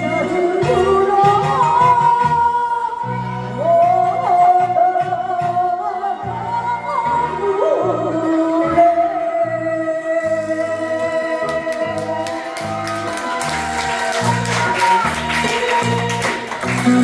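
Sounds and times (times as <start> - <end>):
woman singing into microphone: 0.0 - 12.3.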